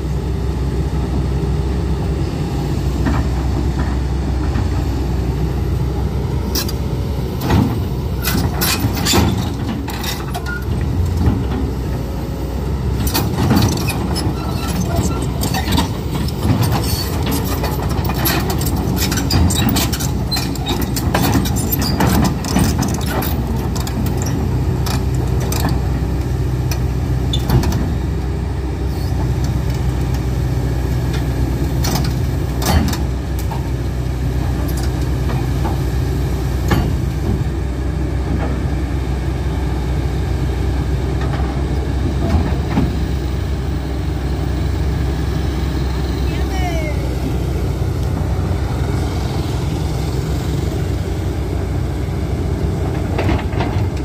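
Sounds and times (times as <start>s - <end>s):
excavator diesel engine running: 0.0s - 54.0s
metallic clanks of steel tracks: 6.4s - 12.3s, 12.9s - 28.0s, 31.1s - 33.8s, 34.4s - 37.6s, 52.9s - 54.0s.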